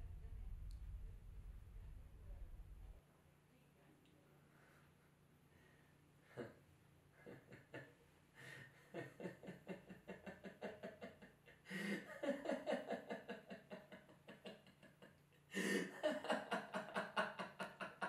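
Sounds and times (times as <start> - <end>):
man laughing: 7.2 - 18.0.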